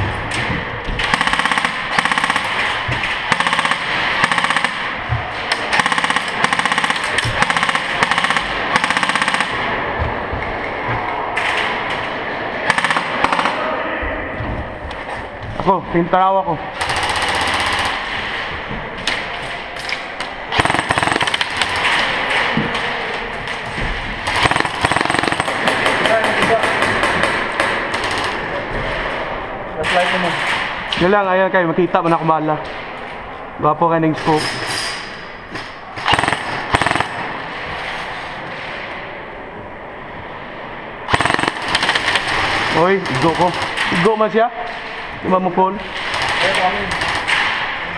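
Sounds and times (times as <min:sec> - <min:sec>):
airsoft guns firing bursts: 0:01.0 - 0:09.8, 0:12.6 - 0:13.7, 0:16.8 - 0:18.4, 0:20.5 - 0:22.1, 0:24.3 - 0:28.5, 0:36.0 - 0:37.4, 0:41.1 - 0:44.2, 0:46.0 - 0:47.7.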